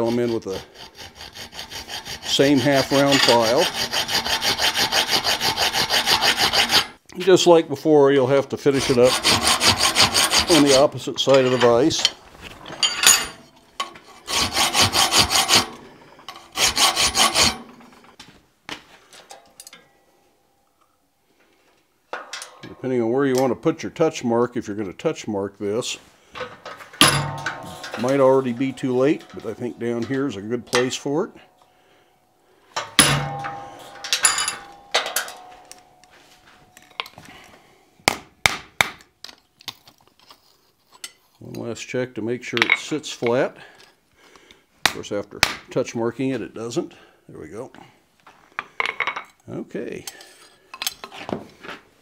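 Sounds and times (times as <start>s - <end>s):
hand file rasping on steel: 0.0s - 7.0s, 8.7s - 10.9s, 14.0s - 18.0s
hammer striking metal punch: 27.0s - 29.6s, 32.8s - 36.2s
hammer blows on anvil: 27.0s - 31.4s, 32.8s - 36.8s.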